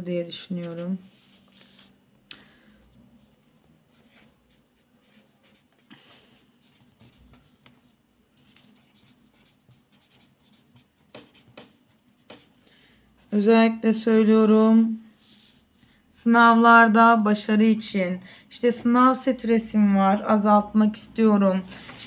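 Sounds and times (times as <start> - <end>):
pen scratching on paper: 0.6 - 1.9, 3.2 - 13.5.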